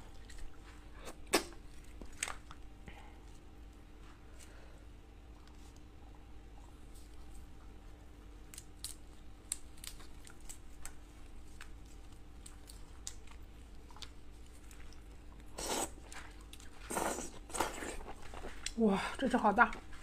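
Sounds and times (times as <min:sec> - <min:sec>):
prawn shell crackling and tearing: 0:08.4 - 0:14.8.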